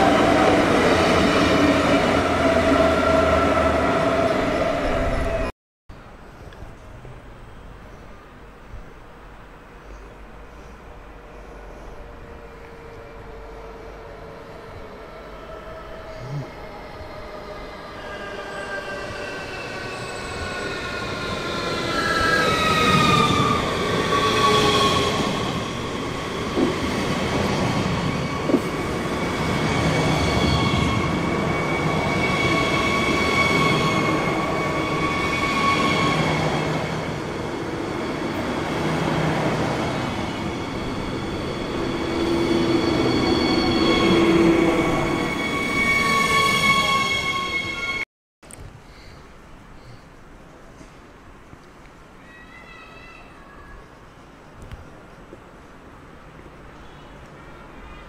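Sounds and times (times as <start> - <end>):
train whine: 0.0 - 5.5, 6.8 - 48.0
train rolling rumble: 0.0 - 46.0
high-pitched train tones: 11.0 - 48.0.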